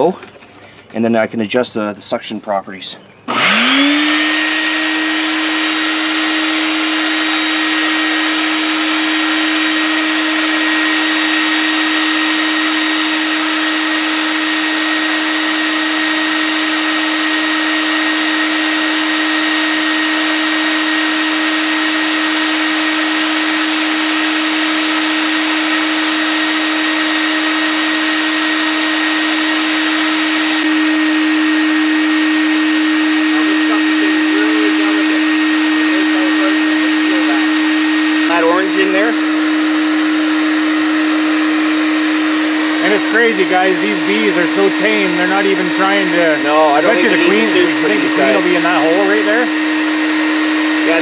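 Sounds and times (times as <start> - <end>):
vacuum motor hum: 3.3 - 51.0.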